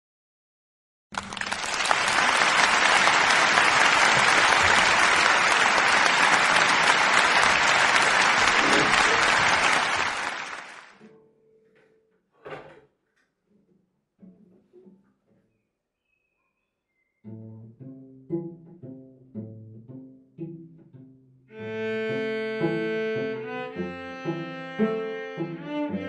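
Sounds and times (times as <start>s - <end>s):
audience applauding: 1.1s - 11.0s.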